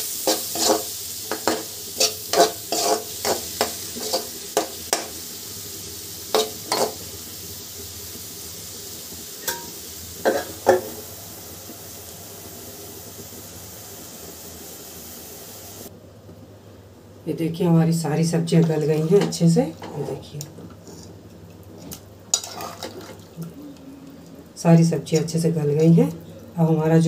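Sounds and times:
masala sizzling: 0.0s - 27.0s
metal spatula scraping a pan: 0.2s - 5.2s, 6.3s - 7.0s, 9.4s - 11.0s, 22.3s - 23.0s.

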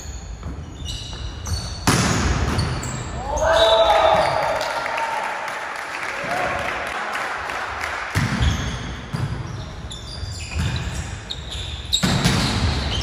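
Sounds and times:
shoes squeaking on floor: 0.0s - 4.4s, 8.3s - 13.0s.

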